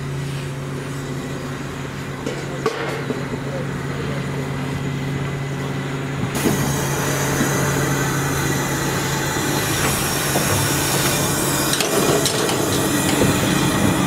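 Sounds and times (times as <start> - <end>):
locomotive clanks: 6.3 - 14.0
steam hissing: 6.4 - 14.0.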